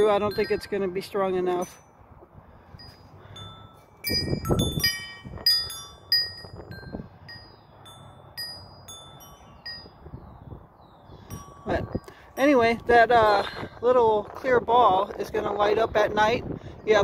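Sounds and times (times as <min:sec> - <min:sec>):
metal wind chime ringing: 0:00.0 - 0:02.0, 0:02.8 - 0:10.1, 0:11.2 - 0:13.2.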